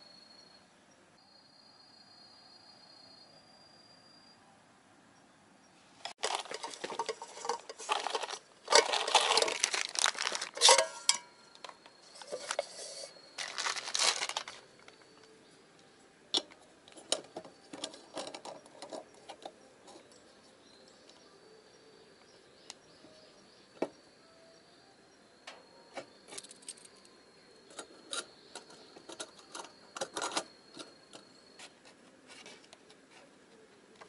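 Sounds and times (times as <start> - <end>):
metal cookware clinking: 6.2 - 13.1
packaging crinkling: 6.2 - 15.0.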